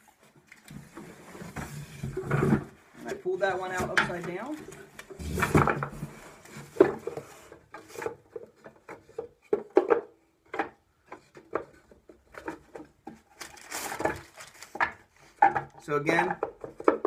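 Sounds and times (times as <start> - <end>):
wooden frames knocking: 3.5 - 4.6, 5.3 - 13.2, 14.7 - 17.0.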